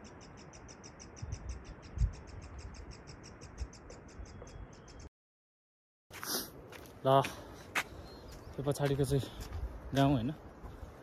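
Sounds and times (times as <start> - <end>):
insect chirping: 0.0 - 5.1.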